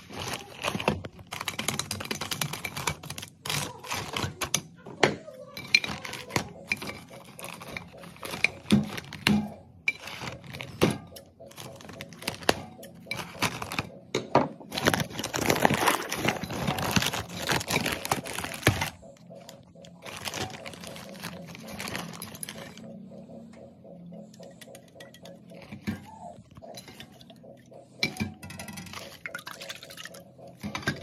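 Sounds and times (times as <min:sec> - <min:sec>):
plastic wrap crinkling: 0:00.0 - 0:04.6, 0:05.8 - 0:14.0, 0:14.6 - 0:22.9.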